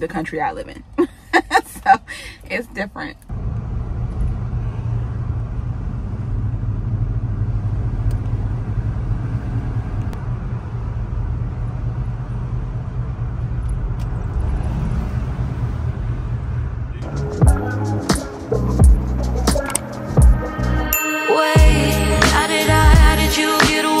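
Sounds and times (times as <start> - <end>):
car road noise rumble: 0.0 - 20.8.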